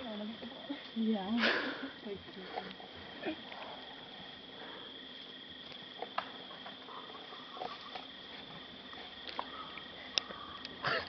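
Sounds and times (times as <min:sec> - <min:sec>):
crickets chirring: 0:00.0 - 0:11.0
faint clicks: 0:09.2 - 0:10.8.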